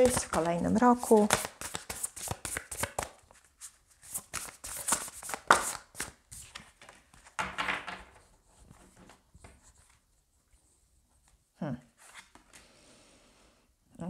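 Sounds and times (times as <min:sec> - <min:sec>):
cards shuffled by hand: 0:00.0 - 0:07.4.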